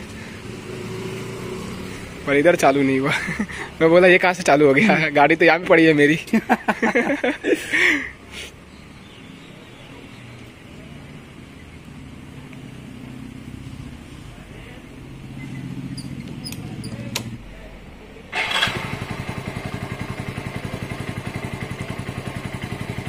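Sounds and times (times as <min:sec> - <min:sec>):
motorcycle engine starting and idling: 0:15.0 - 0:23.0
handlebar switch clicks: 0:16.2 - 0:17.4.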